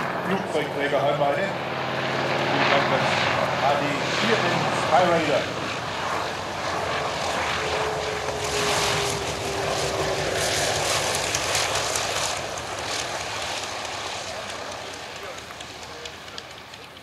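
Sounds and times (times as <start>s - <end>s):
engine crackle: 0.0s - 17.0s
radial aircraft engine running: 0.0s - 17.0s.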